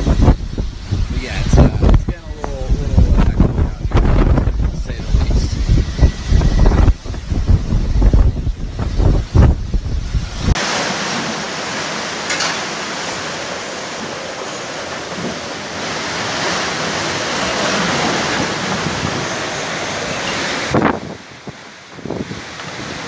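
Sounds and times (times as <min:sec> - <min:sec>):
wind rumble on microphone: 0:00.0 - 0:10.6, 0:14.8 - 0:23.0
wind and driving rain: 0:00.0 - 0:23.0.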